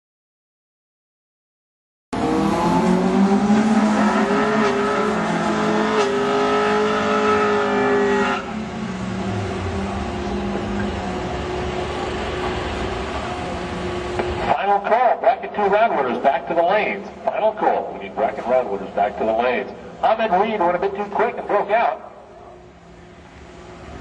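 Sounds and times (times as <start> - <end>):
car engine revving high: 2.2 - 14.5.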